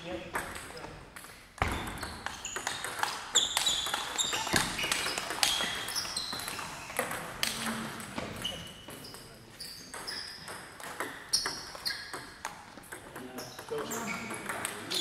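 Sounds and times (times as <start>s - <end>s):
ping pong ball clicking: 2.0s - 8.1s, 9.9s - 15.0s.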